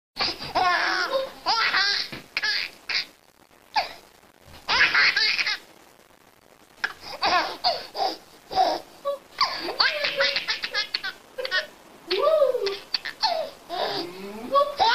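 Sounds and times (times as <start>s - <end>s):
baby laughing: 0.2s - 3.1s, 4.7s - 5.6s, 6.8s - 8.8s, 9.4s - 11.7s, 12.5s - 14.9s.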